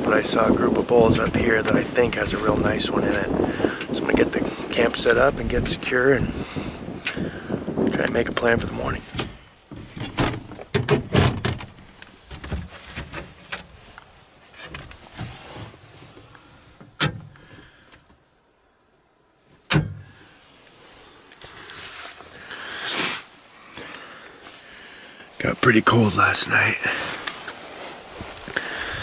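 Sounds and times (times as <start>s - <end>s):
clothing rustle: 8.9s - 18.3s, 19.1s - 29.0s
handling clicks and knocks: 9.1s - 13.8s.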